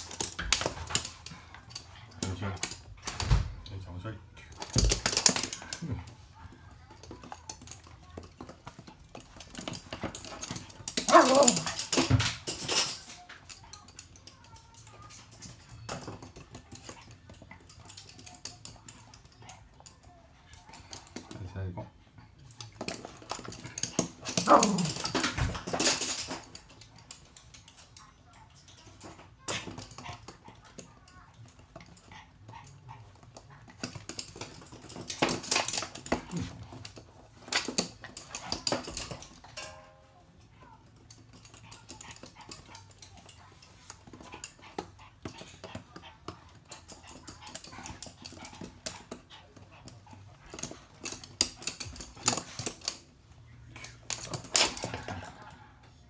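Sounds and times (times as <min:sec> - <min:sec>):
dog claws clicking on wood floor: 0:00.0 - 0:03.6, 0:04.5 - 0:05.9, 0:06.8 - 0:21.4, 0:22.5 - 0:39.6, 0:40.9 - 0:53.1, 0:53.7 - 0:55.5.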